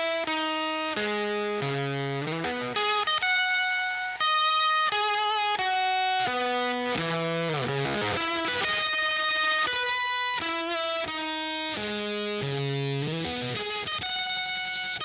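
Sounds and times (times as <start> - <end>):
fuzz electric guitar notes: 0.0 - 15.0.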